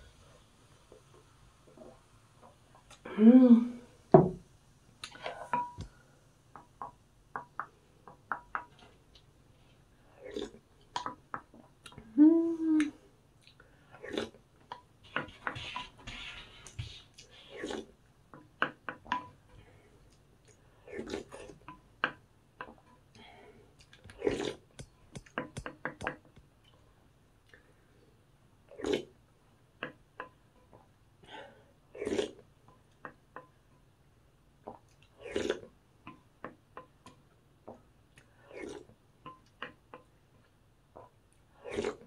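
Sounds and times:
chewing and wet mouth sounds: 12.8s - 14.9s, 23.8s - 27.6s.

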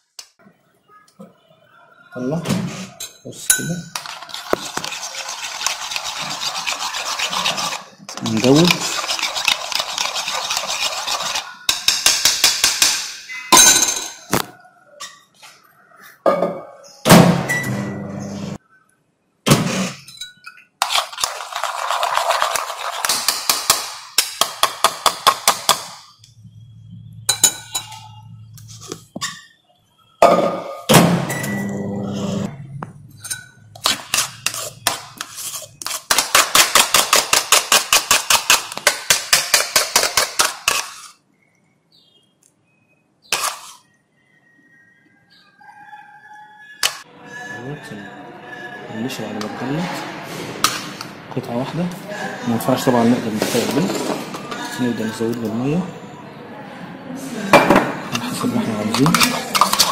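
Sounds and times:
spoon clinking against glass bowl: 3.0s - 4.2s, 27.3s - 28.2s.

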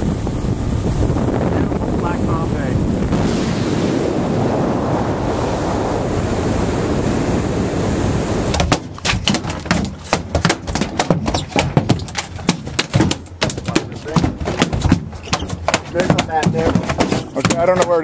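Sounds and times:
rush of water from boat: 0.0s - 14.7s
wind buffeting microphone: 0.0s - 18.0s
fish thrashing on deck: 8.5s - 18.0s.

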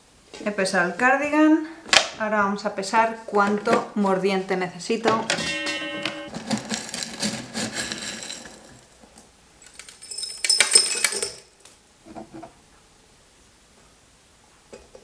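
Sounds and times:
crystals clinking against glass jar: 9.8s - 11.4s.

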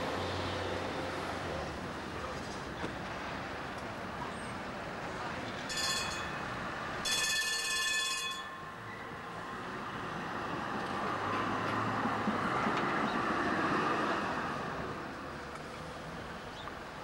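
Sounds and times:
tram wheels on rails: 0.0s - 17.0s
high ringing tone: 5.7s - 9.2s.

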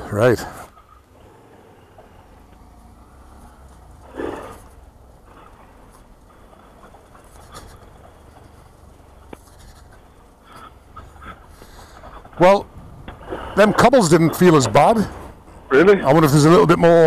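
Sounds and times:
motorcycle engine rumble: 0.0s - 17.0s
tyres rolling on cobblestones: 0.0s - 17.0s.

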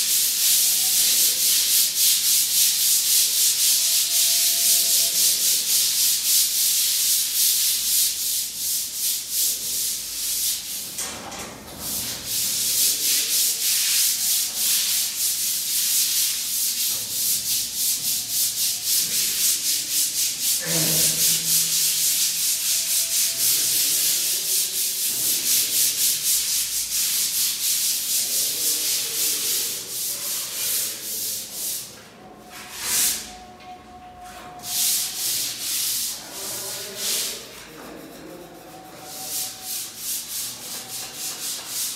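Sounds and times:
sandpaper scraping wall putty: 11.8s - 33.5s, 34.2s - 41.9s.

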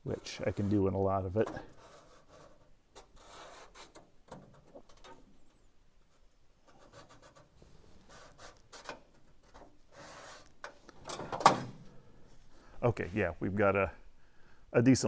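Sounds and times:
marker scratching on metal: 0.1s - 4.1s, 6.1s - 10.6s.

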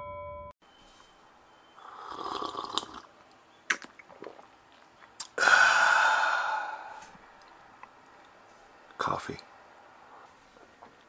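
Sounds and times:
man slurping coffee: 1.8s - 3.1s
mouth clicks swallowing: 3.7s - 4.5s, 5.1s - 5.5s
man exhaling breathily: 5.4s - 7.2s.

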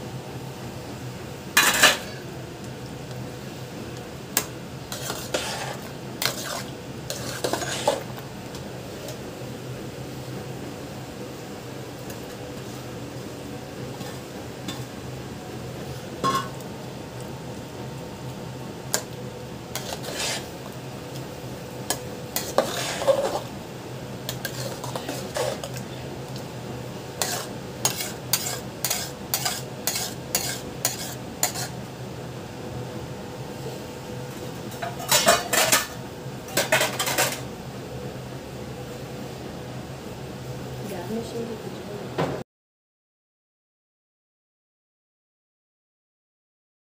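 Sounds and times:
steel spoon scraping a steel pot: 4.9s - 8.0s, 19.8s - 20.5s, 22.4s - 23.5s, 24.3s - 25.8s, 27.2s - 31.7s.

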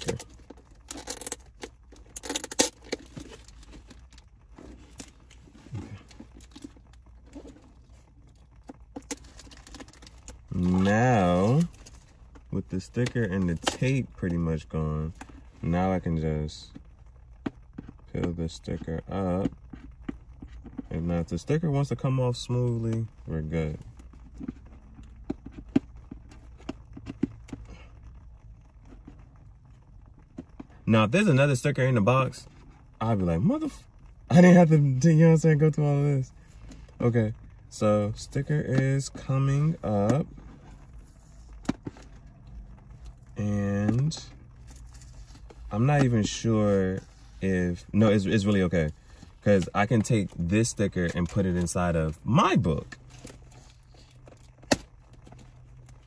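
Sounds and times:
tape and plastic crinkling: 0.0s - 14.4s, 38.0s - 56.0s
low steady hum: 0.0s - 56.0s.

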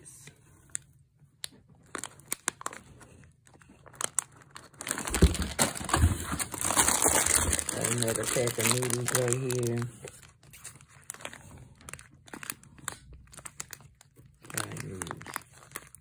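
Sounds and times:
plastic wrappers crinkling: 1.4s - 16.0s
packets thumping in cardboard box: 4.8s - 8.0s.

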